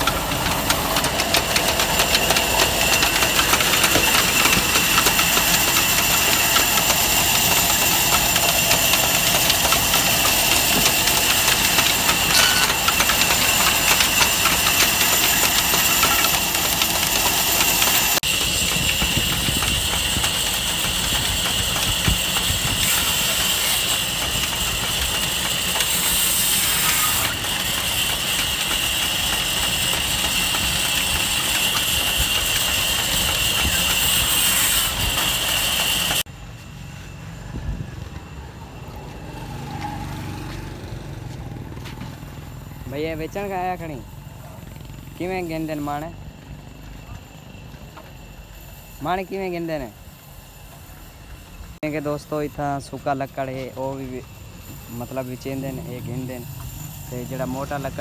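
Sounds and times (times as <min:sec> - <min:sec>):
tractor engine running: 0:00.0 - 0:45.8
band saw high whine: 0:00.0 - 0:58.0.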